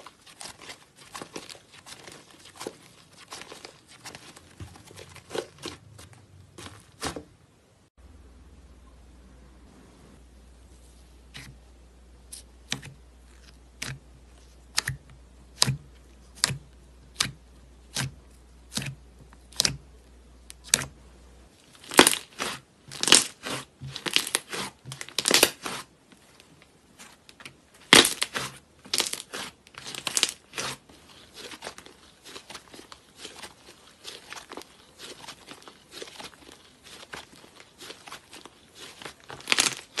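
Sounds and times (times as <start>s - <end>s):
slime crackling and crinkling: 0.0s - 7.3s, 21.5s - 40.0s.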